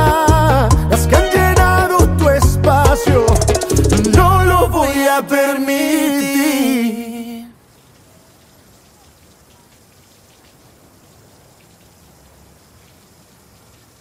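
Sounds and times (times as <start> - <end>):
band playing: 0.0 - 5.2
man singing pop ballad: 0.0 - 7.6.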